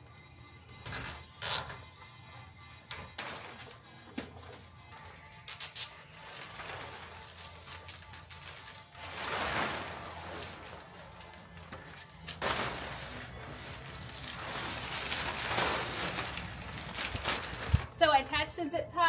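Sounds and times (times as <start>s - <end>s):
plastic sheeting rustling: 3.1s - 3.9s, 5.8s - 18.2s.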